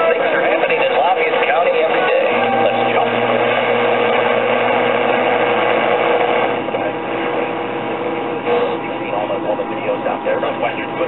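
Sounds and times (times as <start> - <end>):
radio static and hiss: 0.2 - 11.0
low hum: 2.3 - 5.8.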